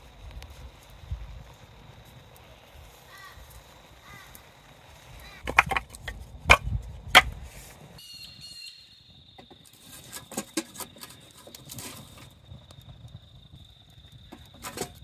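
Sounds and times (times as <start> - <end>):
campfire crackling: 0.0 - 8.0, 9.1 - 15.0
insect trill: 0.0 - 15.0
firewood sticks knocking together: 5.4 - 7.4, 9.4 - 12.2.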